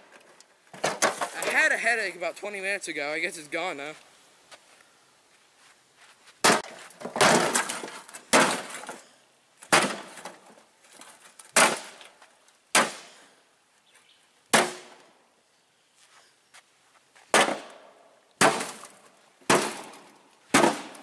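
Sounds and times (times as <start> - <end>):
club smashing metal bucket: 6.4 - 8.9.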